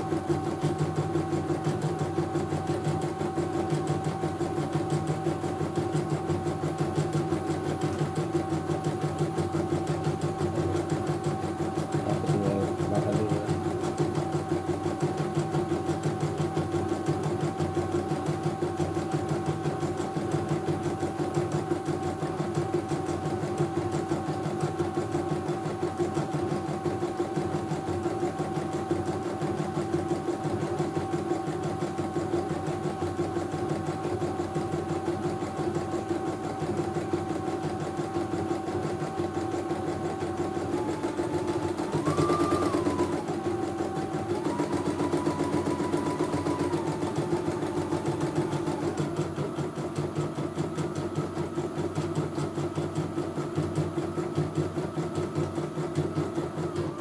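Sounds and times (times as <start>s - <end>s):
embroidery machine stitching: 0.0s - 57.0s
motor whine: 30.5s - 52.3s.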